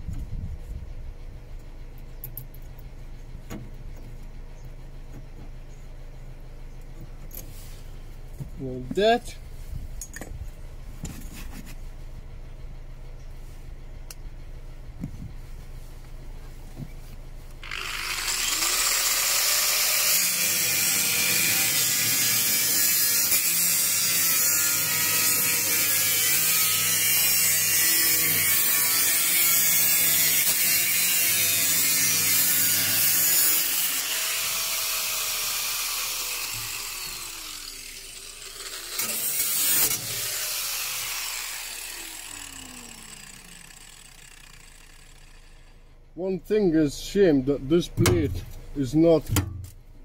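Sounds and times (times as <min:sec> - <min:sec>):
angle grinder cutting steel: 0:17.6 - 0:45.9.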